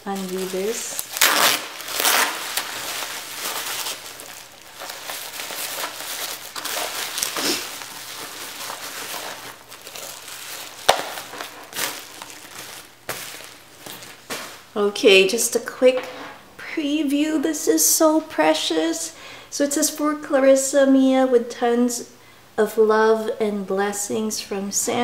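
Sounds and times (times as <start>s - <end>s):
bubble wrap crinkling: 0.0s - 14.8s.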